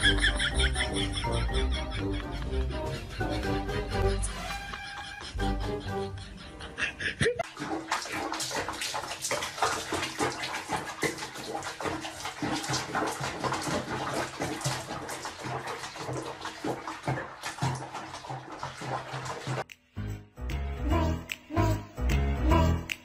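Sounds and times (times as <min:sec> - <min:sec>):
water splashing in sink: 0:07.4 - 0:19.7.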